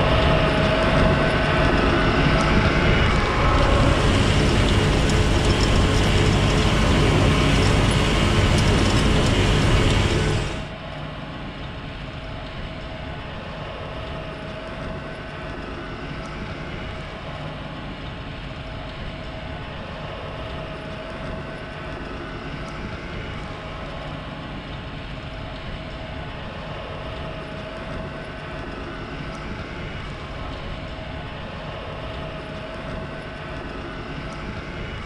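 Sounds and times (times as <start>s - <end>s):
motor running with whine: 0.0s - 10.8s.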